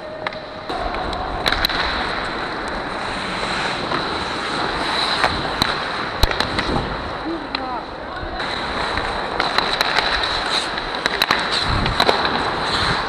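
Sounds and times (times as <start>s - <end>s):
skate blades scraping ice: 0.1s - 13.0s
wind noise on microphone: 6.4s - 7.2s, 11.5s - 13.0s.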